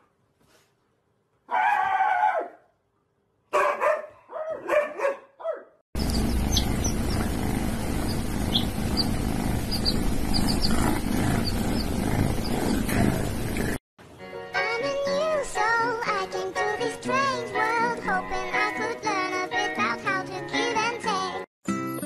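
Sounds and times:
steady hiss: 6.0 - 12.5
chicks peeping: 6.0 - 13.6.

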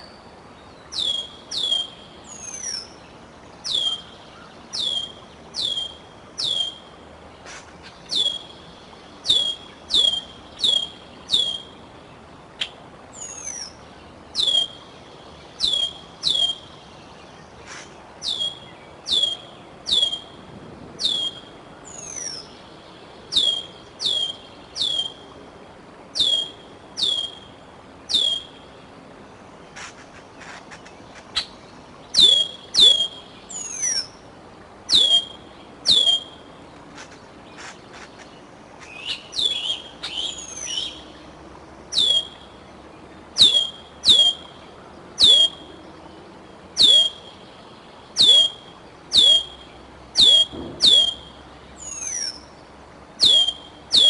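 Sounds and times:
bird's high downward calls: 0.9 - 3.0, 3.6 - 6.9, 8.0 - 8.6, 9.2 - 11.8, 12.6 - 14.9, 15.6 - 16.8, 17.7 - 20.4, 21.0 - 22.6, 23.3 - 25.3, 26.1 - 27.5, 28.1 - 28.7, 32.1 - 34.2, 34.9 - 36.5, 38.8 - 41.2, 41.9 - 42.6, 43.3 - 45.8, 46.8 - 52.5, 53.2 - 54.0.

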